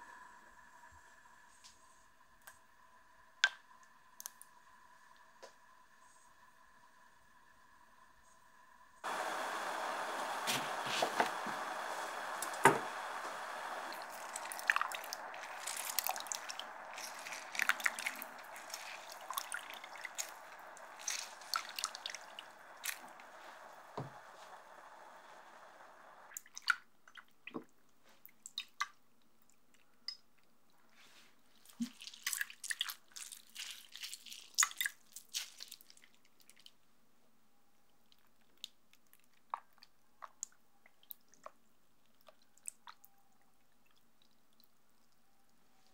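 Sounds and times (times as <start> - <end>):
gas burner hissing: 4.6 - 26.3
lemon juice dripping: 13.7 - 24.8
soft water splashes: 13.9 - 24.0
gelatin sheets crinkling: 33.0 - 36.0.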